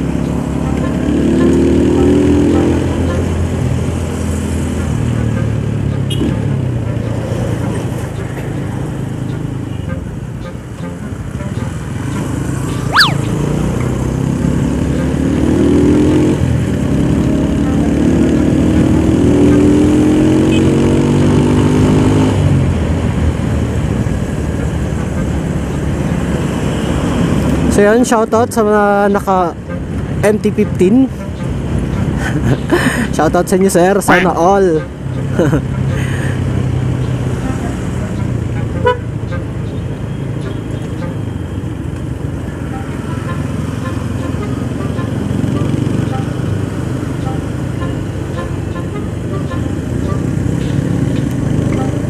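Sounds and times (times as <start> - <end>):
motorcycle engine accelerating: 0.0 - 4.5, 12.1 - 24.2
light street traffic: 0.0 - 52.0
wind and road noise: 0.0 - 52.0.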